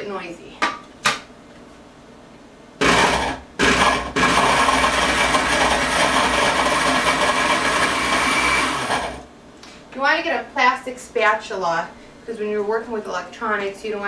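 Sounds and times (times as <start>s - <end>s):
blender running: 2.8s - 9.3s.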